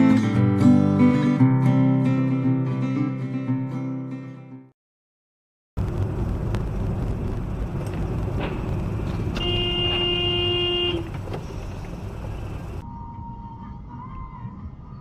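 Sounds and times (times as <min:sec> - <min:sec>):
road and engine rumble: 0:05.8 - 0:12.8
car horn: 0:09.2 - 0:12.8.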